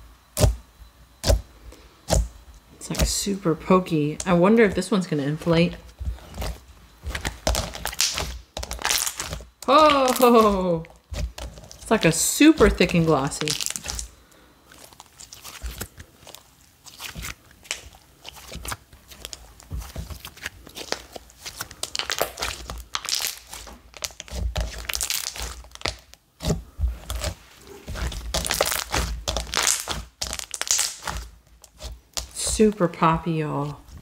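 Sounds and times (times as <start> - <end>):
slime crackling and popping: 6.2 - 32.8.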